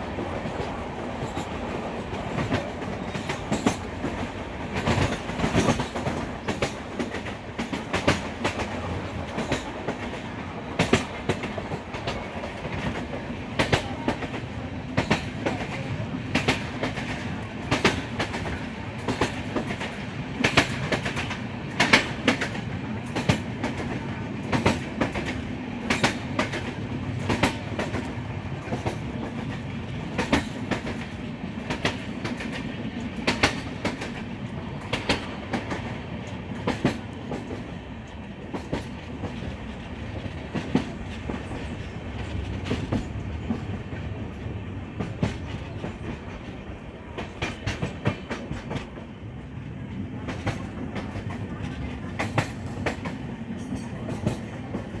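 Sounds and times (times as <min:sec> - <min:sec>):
train wheels clattering over rail joints: 0:00.4 - 0:37.7, 0:50.3 - 0:55.0.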